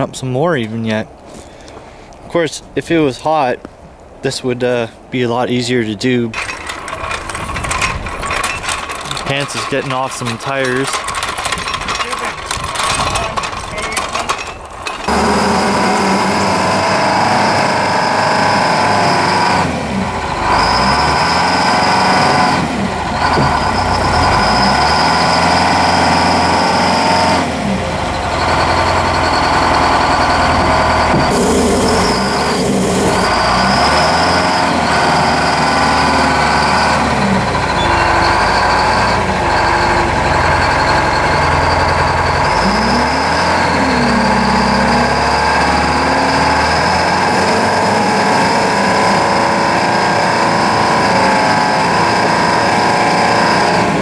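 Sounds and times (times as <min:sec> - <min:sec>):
wheel loader diesel engine revving: 0:06.4 - 0:11.5, 0:12.1 - 0:54.0
steady high whine: 0:27.6 - 0:48.9.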